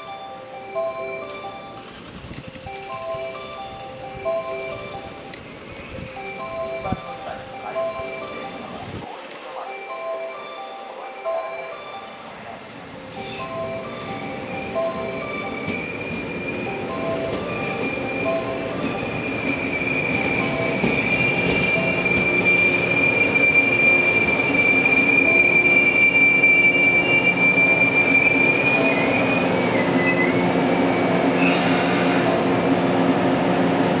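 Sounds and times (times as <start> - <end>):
rumble of running train: 0.0 - 9.7, 10.9 - 34.0
train wheels squealing: 11.6 - 32.4.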